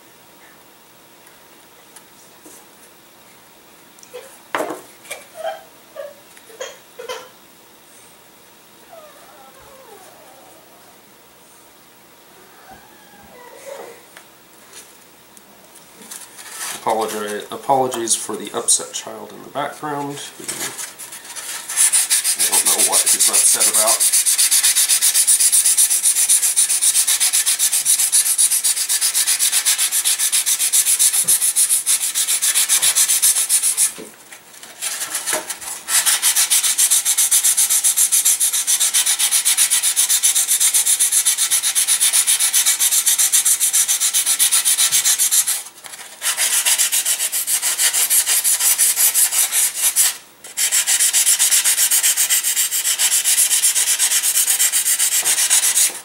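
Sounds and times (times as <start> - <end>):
sanding block on wood: 16.4 - 18.1, 20.5 - 34.0, 34.8 - 56.0.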